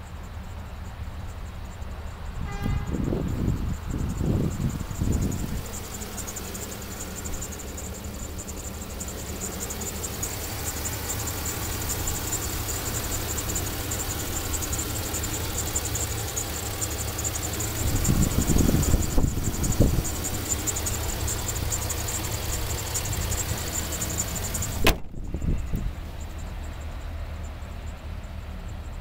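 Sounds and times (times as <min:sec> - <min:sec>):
pickup engine idling: 0:00.0 - 0:29.0
rapid high-pitched ticking: 0:03.3 - 0:24.8.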